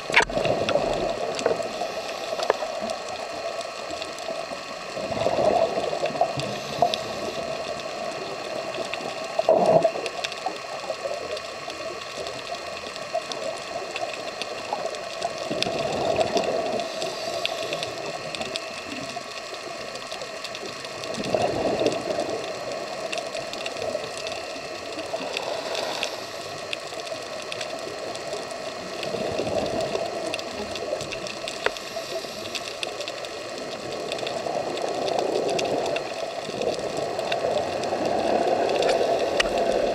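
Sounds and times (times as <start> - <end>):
diver exhaled bubbles gushing: 0.0 - 3.4, 5.0 - 10.1, 15.4 - 18.3, 21.1 - 23.1
steady underwater hum: 0.0 - 39.9.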